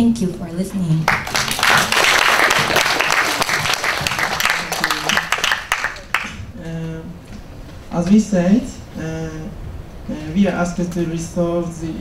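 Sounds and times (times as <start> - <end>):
audience applauding: 1.1 - 6.4.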